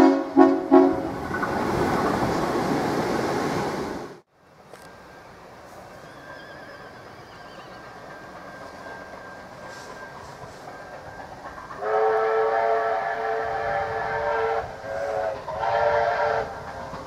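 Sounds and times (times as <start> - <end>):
train chord whistle: 0.0 - 1.1, 11.7 - 16.7
distant train rumble: 0.0 - 17.0.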